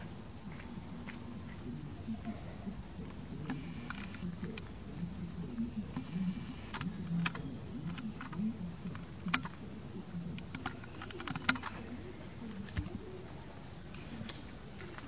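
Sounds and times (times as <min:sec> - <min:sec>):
faint low murmur: 0:00.0 - 0:15.0
sharp clicks and taps: 0:06.0 - 0:09.6, 0:10.4 - 0:11.8.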